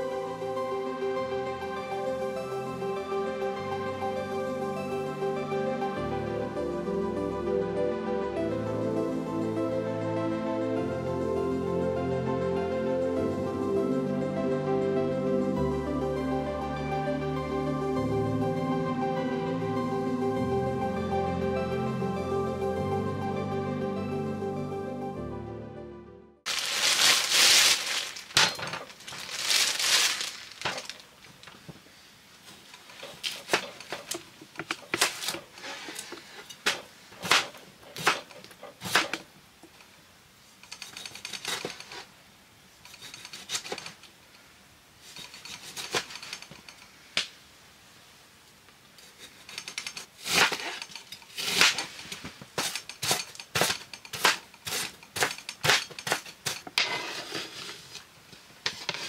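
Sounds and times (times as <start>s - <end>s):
scraping or rustling: 26.5s - 39.2s, 40.6s - 42.1s, 49.0s - 59.0s.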